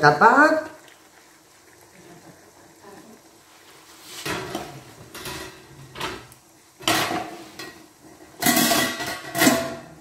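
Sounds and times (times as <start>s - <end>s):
metal pan lid clanking: 6.8s - 7.8s, 8.4s - 9.9s.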